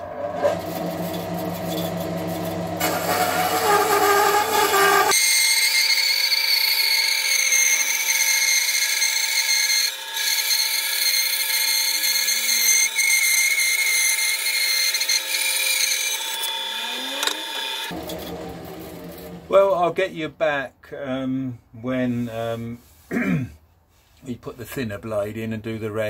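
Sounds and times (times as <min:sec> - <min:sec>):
bandsaw cutting wood: 0:00.0 - 0:19.9.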